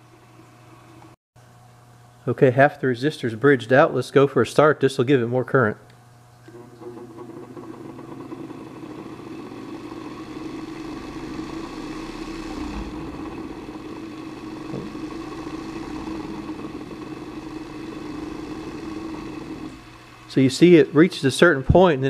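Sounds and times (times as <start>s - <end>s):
grinder motor humming: 6.5s - 21.9s.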